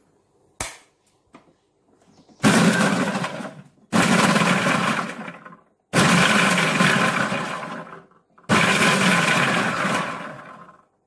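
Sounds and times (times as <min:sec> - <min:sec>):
food processor motor running: 0:02.4 - 0:10.9.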